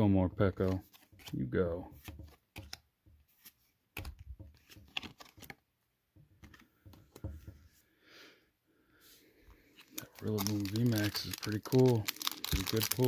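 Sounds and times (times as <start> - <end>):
trading cards clicking and slapping: 0.6 - 5.6, 9.8 - 13.0.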